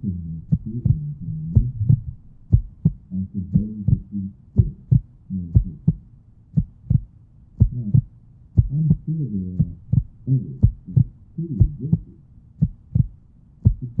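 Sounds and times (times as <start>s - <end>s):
heartbeat double thump: 0.5s - 14.0s.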